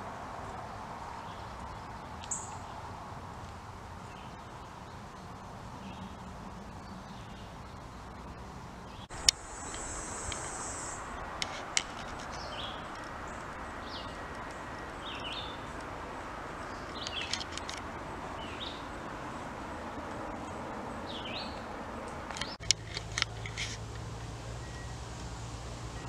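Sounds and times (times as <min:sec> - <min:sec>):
outdoor background noise: 0:00.0 - 0:26.0
birds chirping: 0:05.8 - 0:19.1
sharp clicks: 0:09.1 - 0:13.5
high insect buzz: 0:09.1 - 0:14.2.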